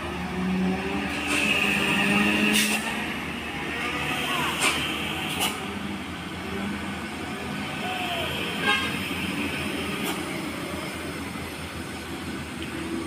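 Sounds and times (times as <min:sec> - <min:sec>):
slow traffic engine rumble: 0:00.0 - 0:13.0
car horn toot: 0:08.1 - 0:09.0.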